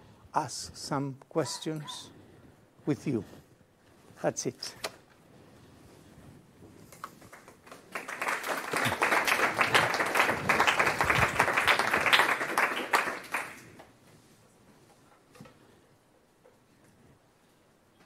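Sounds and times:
audience applauding: 7.2 - 13.9.

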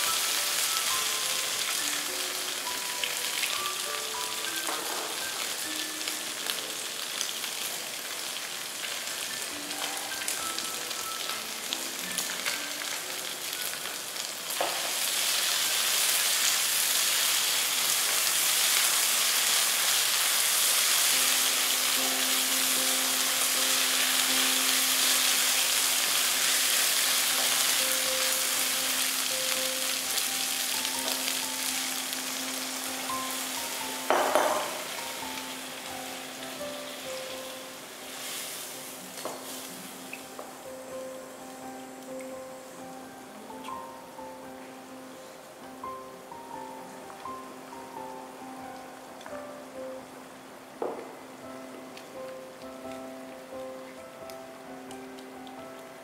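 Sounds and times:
meat and onion sizzling in wok: 0.0 - 44.2.

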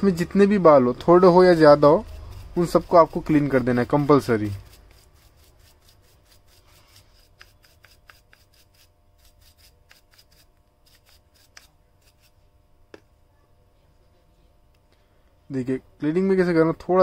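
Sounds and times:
faint rubbing: 1.1 - 12.6.

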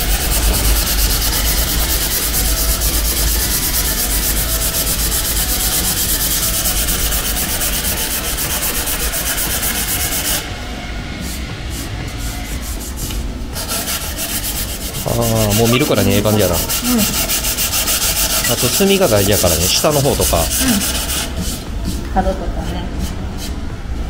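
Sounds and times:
sanding sponge scrubbing: 0.0 - 10.5, 11.2 - 23.6
steady low hum: 0.0 - 24.0.

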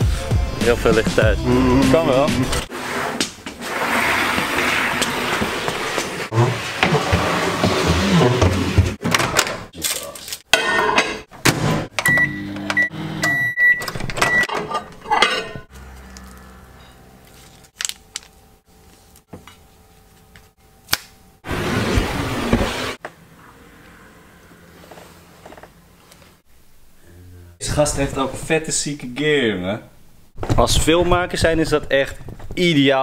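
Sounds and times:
footstool scraping on hard floor: 2.7 - 9.0
microwave running hum: 11.9 - 21.4.

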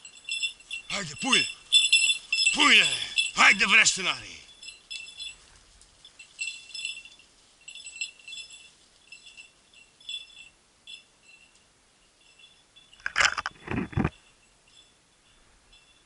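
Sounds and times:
dog collar bell jingling: 0.0 - 16.0
branches scraping microphone: 13.1 - 14.2.

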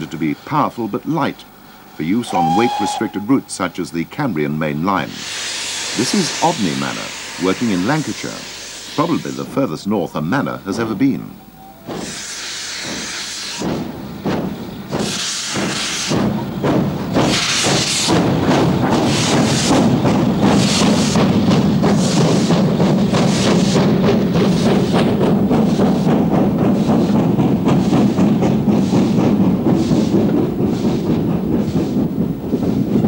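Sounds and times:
steam locomotive chuffing: 0.0 - 33.0
steam hiss from drain cocks: 1.6 - 4.3, 4.9 - 11.0, 11.9 - 23.8.

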